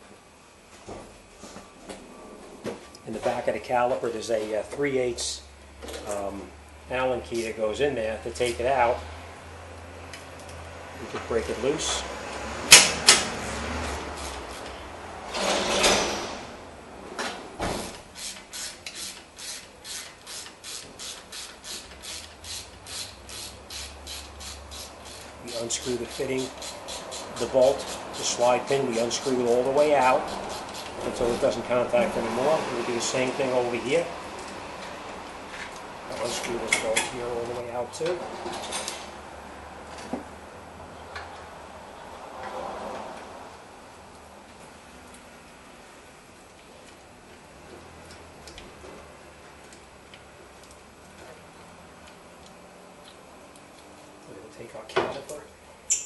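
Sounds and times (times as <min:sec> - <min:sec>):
ratchet wrench ratcheting: 0:18.2 - 0:28.4.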